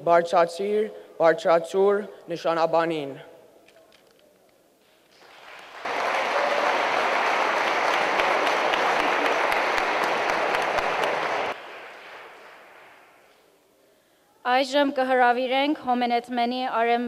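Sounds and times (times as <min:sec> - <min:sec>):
audience applauding: 0:05.1 - 0:13.3.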